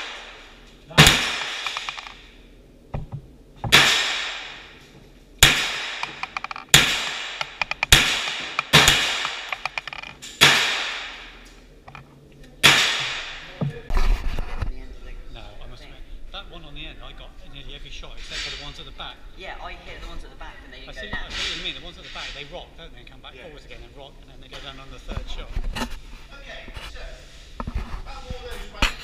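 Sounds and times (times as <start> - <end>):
rifle shots echoing: 0.0 - 2.2, 3.7 - 4.7, 5.4 - 9.8, 10.4 - 11.4.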